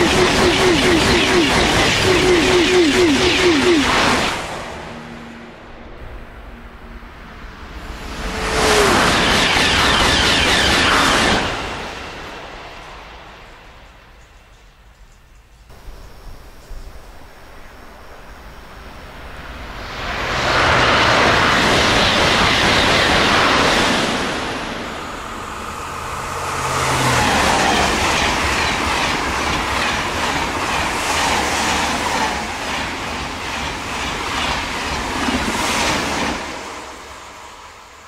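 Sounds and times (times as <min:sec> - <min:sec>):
wheels beating over rail joints: 0:00.0 - 0:04.4
high-speed trains passing: 0:00.0 - 0:38.0.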